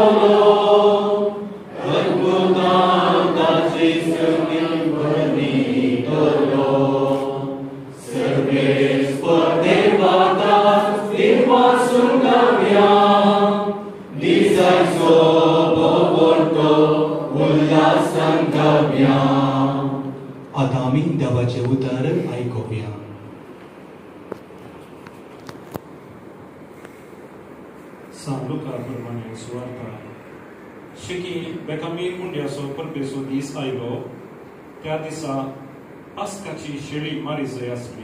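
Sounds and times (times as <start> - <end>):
small group singing along: 0.0 - 20.4.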